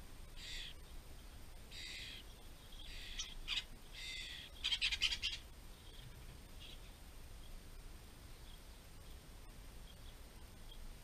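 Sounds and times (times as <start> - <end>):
fledgling bird begging calls: 0.4 - 0.8, 1.7 - 5.4.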